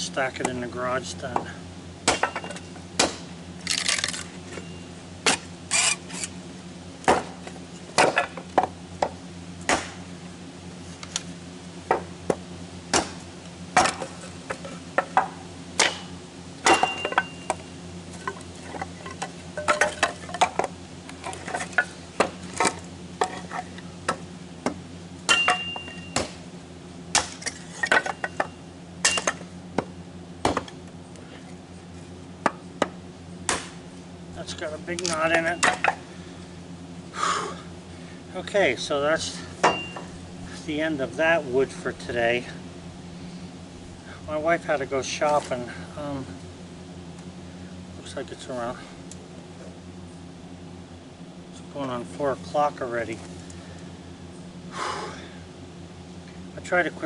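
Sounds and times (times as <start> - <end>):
steady low hum: 0.0 - 57.0
wood chopping: 1.4 - 4.3, 7.0 - 10.0, 11.9 - 17.6, 21.3 - 26.4, 27.1 - 30.8, 32.4 - 33.8, 35.0 - 36.0
split sticks clattering: 13.8 - 23.8.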